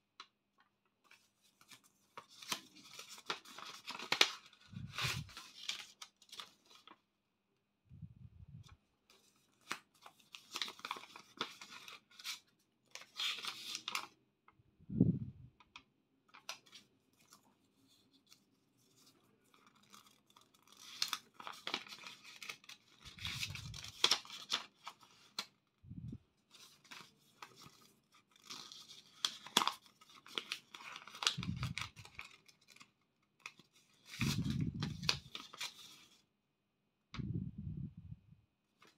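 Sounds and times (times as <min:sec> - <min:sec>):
paper rustling and crinkling: 0:01.0 - 0:07.1, 0:08.6 - 0:14.2, 0:15.7 - 0:25.7, 0:26.4 - 0:36.3.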